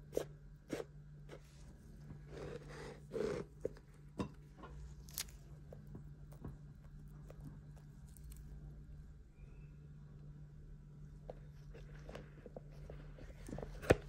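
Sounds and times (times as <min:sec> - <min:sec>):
cream being scraped: 0:00.0 - 0:03.8
soft handling rustle: 0:11.1 - 0:14.0.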